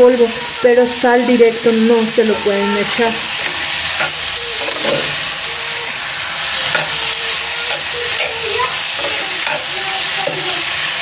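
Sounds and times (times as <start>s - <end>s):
food sizzling in frying pan: 0.0s - 11.0s
metal spoon scraping pan: 2.8s - 11.0s.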